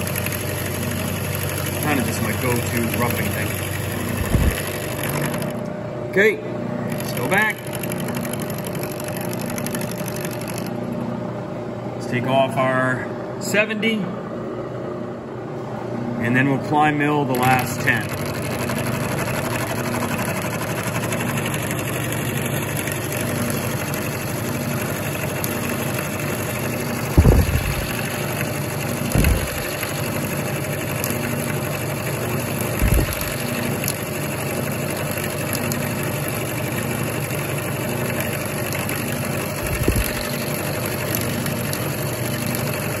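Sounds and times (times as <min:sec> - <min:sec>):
milling machine cutting metal: 0:00.0 - 0:05.6, 0:06.9 - 0:11.0, 0:17.3 - 0:43.0
low thumps: 0:04.2 - 0:04.6, 0:27.1 - 0:28.0, 0:29.1 - 0:29.8, 0:32.8 - 0:33.3.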